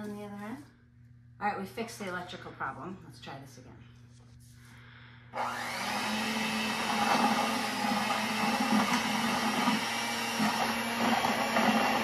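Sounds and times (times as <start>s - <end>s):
electric hand mixer running: 5.3s - 12.0s.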